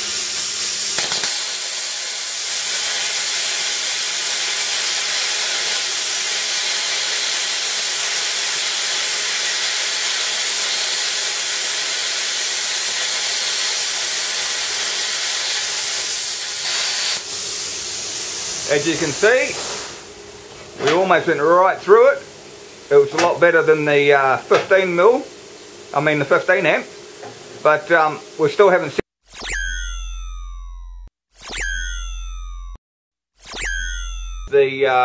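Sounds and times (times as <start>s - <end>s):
plasma cutter hissing: 0.0s - 27.0s.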